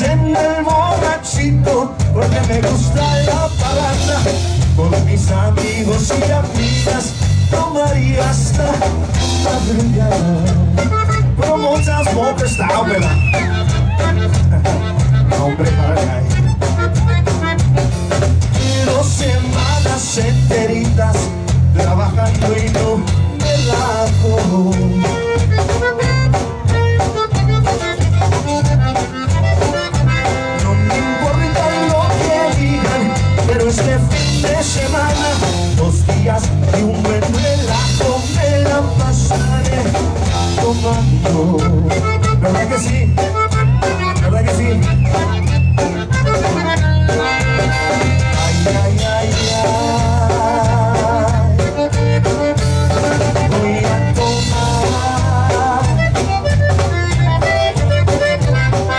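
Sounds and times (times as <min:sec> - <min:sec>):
accordion: 0:00.0 - 0:58.9
steady drum beat: 0:00.0 - 0:58.9.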